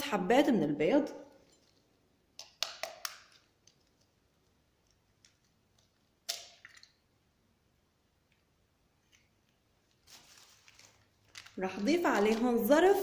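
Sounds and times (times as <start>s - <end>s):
eggs cracked against glass bowl: 2.4s - 3.4s, 6.2s - 7.0s.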